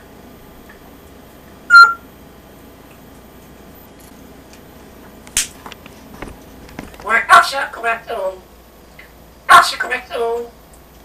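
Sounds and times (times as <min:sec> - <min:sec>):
faint taps: 0:05.3 - 0:07.1.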